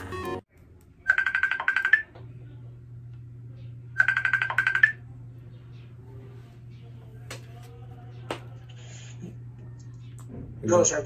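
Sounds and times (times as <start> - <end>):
outgoing call ringing tone: 1.1 - 2.1, 4.0 - 5.0.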